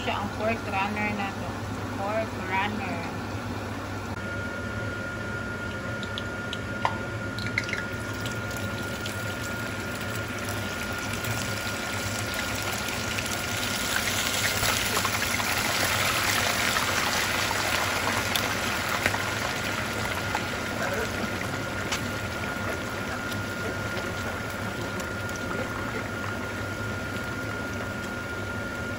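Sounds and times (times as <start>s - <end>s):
food frying in hot oil: 5.6s - 28.9s
oil popping: 5.9s - 28.6s.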